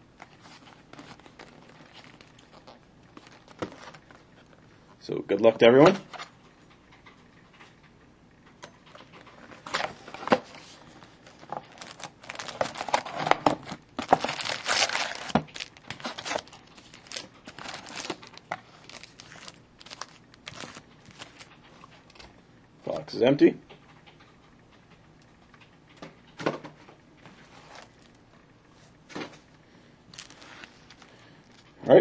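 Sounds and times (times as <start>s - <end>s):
foil packs crinkling: 0.1s - 4.6s, 9.1s - 22.3s, 29.2s - 31.8s.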